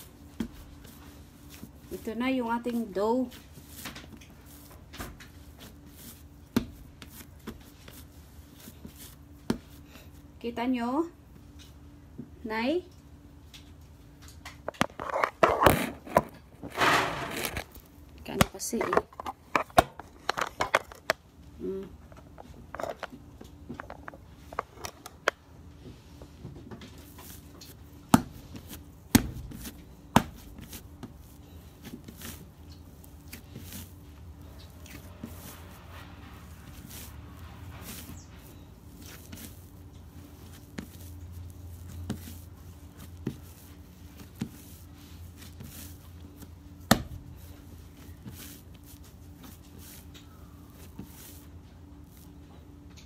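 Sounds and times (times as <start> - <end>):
hands kneading dough: 0.0 - 53.0.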